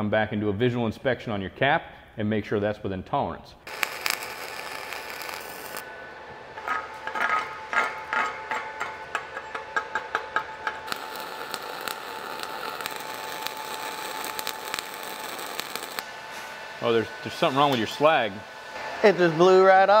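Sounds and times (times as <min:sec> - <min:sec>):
welding arc crackling hiss: 0:03.7 - 0:05.9, 0:10.8 - 0:16.1.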